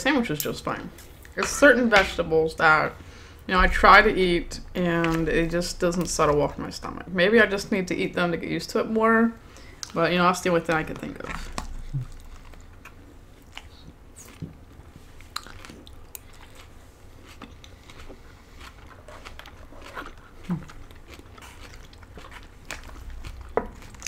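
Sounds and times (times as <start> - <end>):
people chewing food: 10.8 - 24.0
soft mouth sounds: 11.4 - 12.9.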